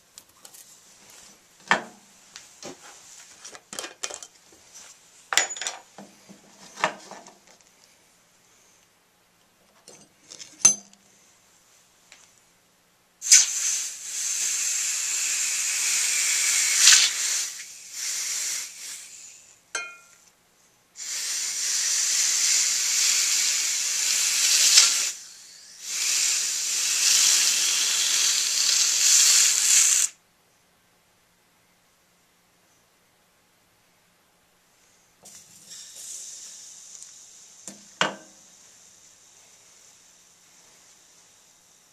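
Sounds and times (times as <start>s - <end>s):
hot metal hissing in water: 13.2s - 19.6s, 21.0s - 30.2s, 35.2s - 41.9s.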